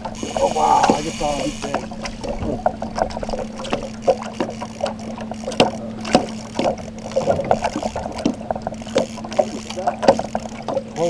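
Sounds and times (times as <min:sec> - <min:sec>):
boat motor humming: 0:00.0 - 0:11.0
water splashing against boat hull: 0:00.0 - 0:11.0.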